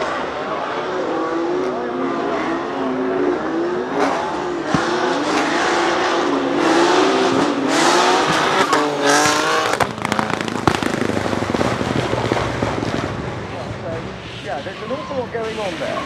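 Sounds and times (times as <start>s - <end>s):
car engine revving: 0.0s - 14.4s
engine crackles and pops: 8.2s - 14.1s.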